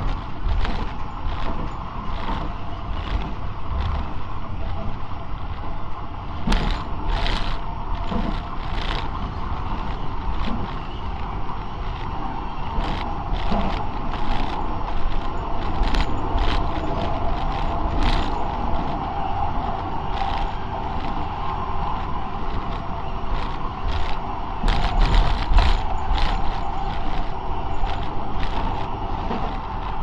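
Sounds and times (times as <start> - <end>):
track clicks and rattles: 0.0 - 30.0
tram rumbling on track: 0.0 - 30.0.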